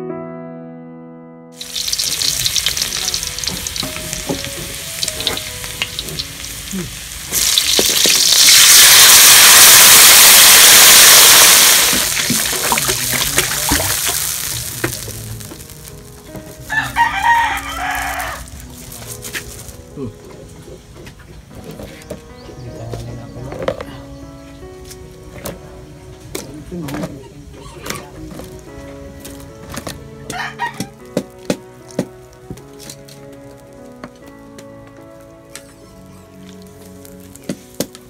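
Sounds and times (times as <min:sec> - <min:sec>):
food hitting hot oil: 0:01.6 - 0:16.5
oil sizzling and crackling: 0:01.6 - 0:19.9, 0:30.9 - 0:34.0, 0:36.5 - 0:38.0.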